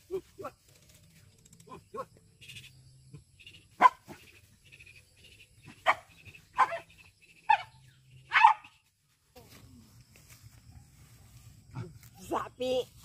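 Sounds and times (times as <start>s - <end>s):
dog barking: 3.8s - 4.1s, 5.8s - 6.9s, 8.3s - 8.7s.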